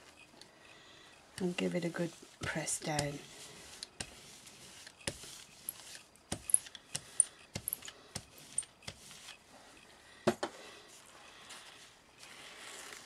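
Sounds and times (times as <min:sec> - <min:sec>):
rubber roller clicking over paper: 0:01.4 - 0:09.4.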